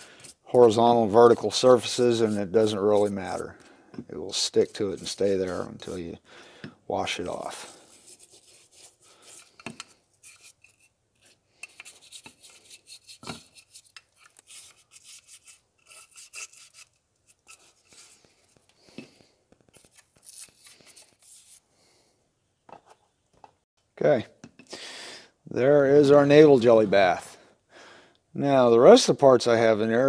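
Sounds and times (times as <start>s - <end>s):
stiff brush scrubbing metal: 0.0s - 3.6s, 4.3s - 6.0s.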